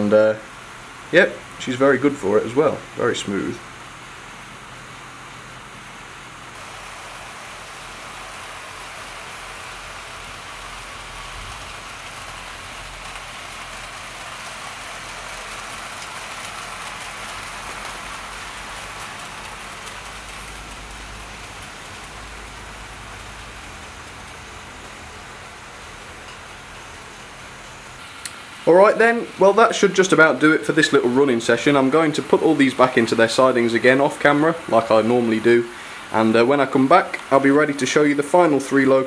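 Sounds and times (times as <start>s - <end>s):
model train wheels on rails: 0.0s - 39.0s
electric motors: 6.4s - 28.5s.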